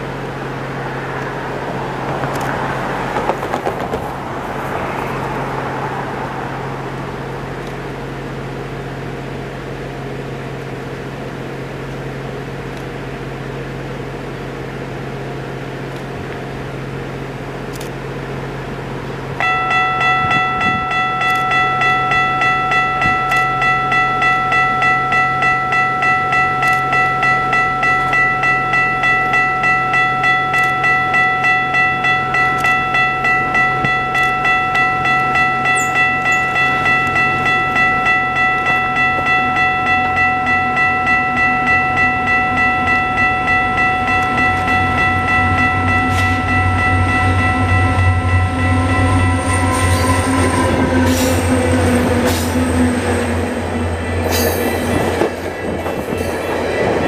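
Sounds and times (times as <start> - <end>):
low hum of street noise: 0.0 - 57.0
level crossing warning bell: 19.4 - 57.0.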